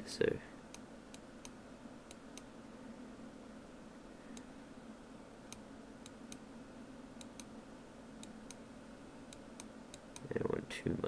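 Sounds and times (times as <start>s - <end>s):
steady low hum and hiss: 0.0s - 11.0s
computer mouse clicks: 0.7s - 2.5s, 4.3s - 4.5s, 5.5s - 6.4s, 7.2s - 7.5s, 8.2s - 8.6s, 9.3s - 10.3s.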